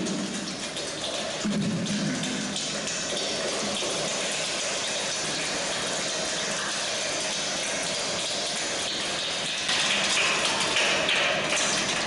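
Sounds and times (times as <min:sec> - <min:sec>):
children body percussion rain: 0:00.0 - 0:05.4, 0:09.6 - 0:12.0.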